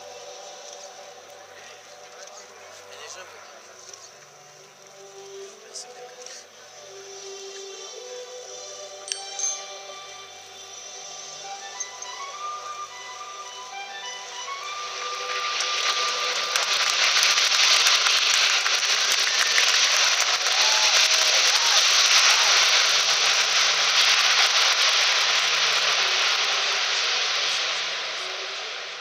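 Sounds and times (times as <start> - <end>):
jet engines roaring: 14.0 - 29.0.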